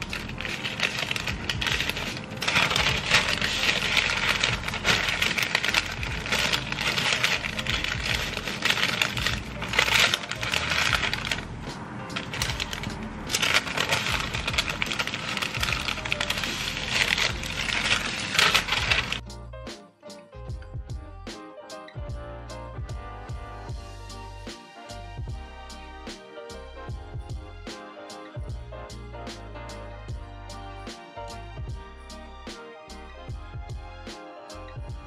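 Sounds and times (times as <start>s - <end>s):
paper crinkling and rustling: 0.0s - 11.5s, 12.1s - 19.2s
music playing: 0.0s - 35.0s.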